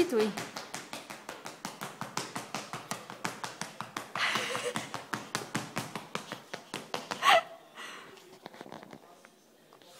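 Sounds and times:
shoes tapping on tile floor: 0.0 - 7.5.

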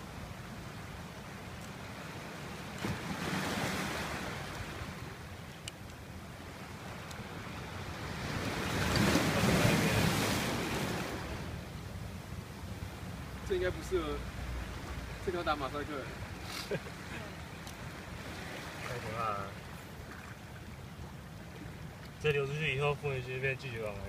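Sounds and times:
faint clicks: 5.6 - 6.0, 7.0 - 7.2, 17.6 - 17.8.

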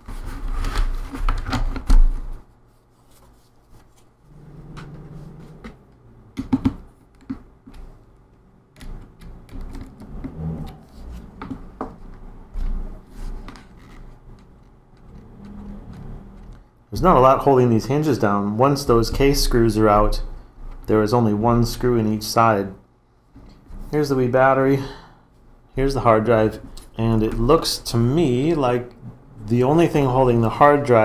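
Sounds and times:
plastic parts clicking and rattling: 6.4 - 10.4.

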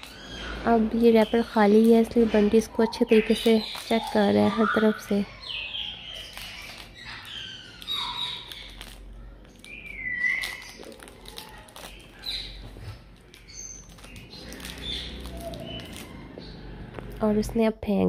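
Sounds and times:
wrapper crinkling and clicking: 0.9 - 17.2
parrot whistles and chirps: 2.7 - 9.0, 9.6 - 12.9.

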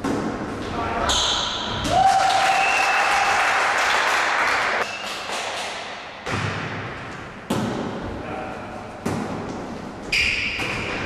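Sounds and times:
spectators applauding and cheering: 1.9 - 5.4
volleyball serve hit: 6.0 - 8.1.

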